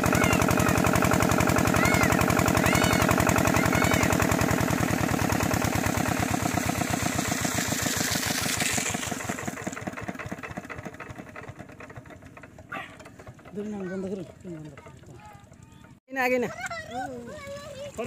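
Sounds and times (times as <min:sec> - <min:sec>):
diesel engine chugging: 0:00.0 - 0:18.0.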